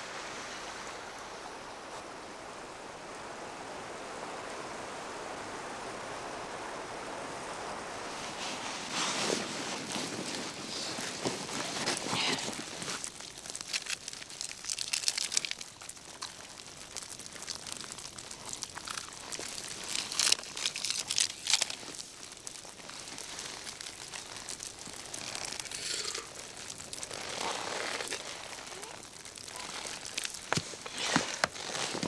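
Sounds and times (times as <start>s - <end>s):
nylon crinkling and rustling: 8.3s - 32.0s.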